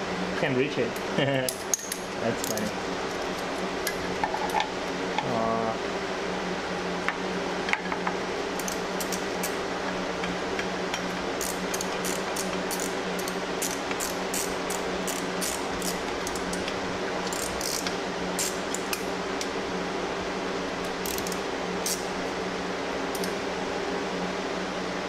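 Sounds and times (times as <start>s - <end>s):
shop fan humming: 0.0s - 25.0s
socket ratchet clicking: 11.4s - 16.7s, 17.3s - 19.0s, 20.9s - 22.0s.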